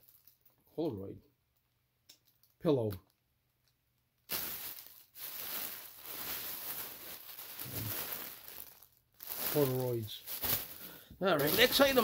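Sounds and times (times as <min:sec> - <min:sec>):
plastic bag crinkling: 0:04.2 - 0:12.0.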